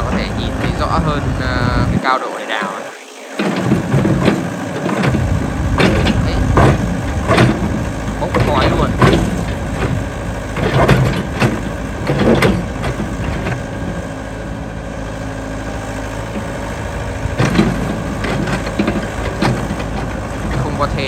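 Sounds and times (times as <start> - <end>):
excavator diesel engine running: 0.0 - 21.0
excavator bucket knocks and scrapes: 3.4 - 13.6, 17.4 - 20.7.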